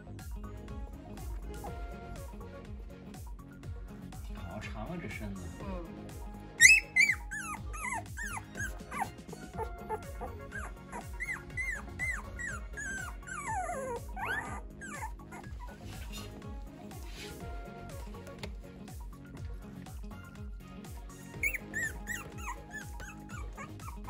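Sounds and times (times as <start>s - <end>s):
puppy whimpering and squealing: 6.6s - 16.3s, 21.3s - 24.0s.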